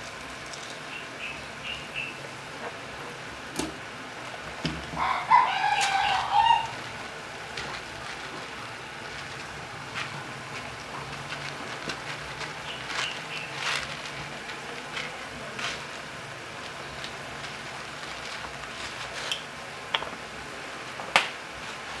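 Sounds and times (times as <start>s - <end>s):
pot boiling with popping bubbles: 5.8s - 22.0s.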